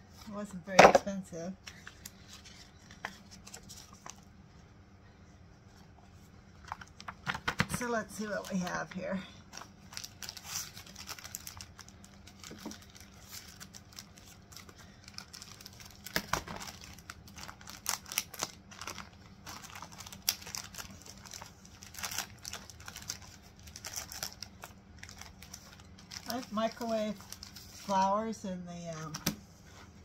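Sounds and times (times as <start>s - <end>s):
plastic bag crinkling: 8.0s - 28.0s.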